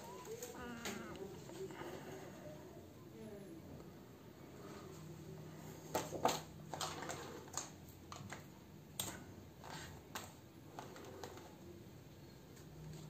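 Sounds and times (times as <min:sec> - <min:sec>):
hands tapping and rustling objects: 0:05.8 - 0:11.6.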